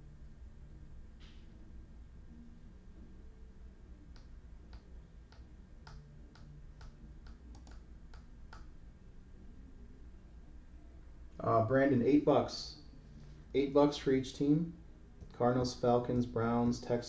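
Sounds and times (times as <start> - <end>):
low steady hum: 0.0 - 17.0
computer mouse clicks: 4.1 - 8.7.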